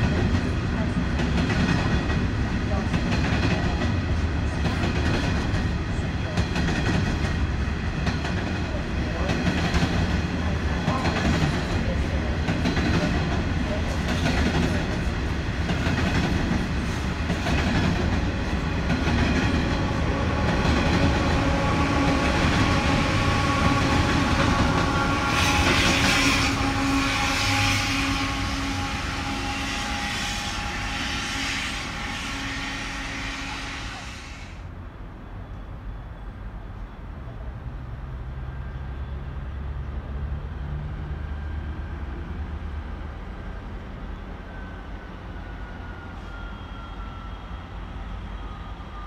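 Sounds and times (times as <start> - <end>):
train wheels rumbling on rails: 0.0 - 34.7.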